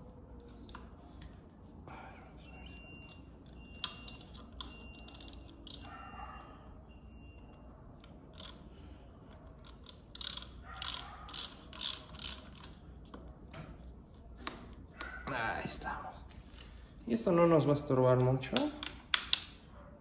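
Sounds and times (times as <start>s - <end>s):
bicycle gear shifter clicking: 3.4s - 5.9s, 8.0s - 8.7s, 9.3s - 13.2s.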